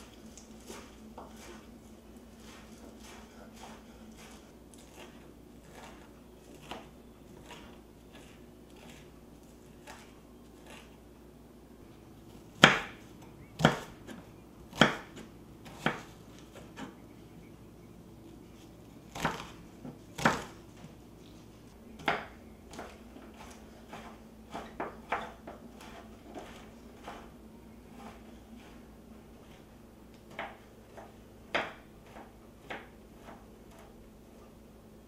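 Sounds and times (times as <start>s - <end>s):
knife chopping on wooden board: 0.6s - 1.7s, 2.4s - 11.0s, 12.6s - 17.0s, 19.1s - 20.6s, 22.0s - 28.8s, 30.3s - 34.0s.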